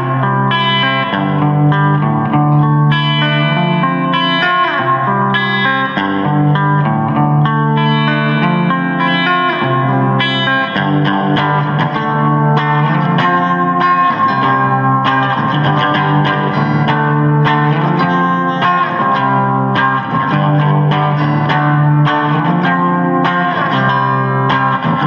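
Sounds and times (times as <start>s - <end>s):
guitar music: 0.0s - 25.0s.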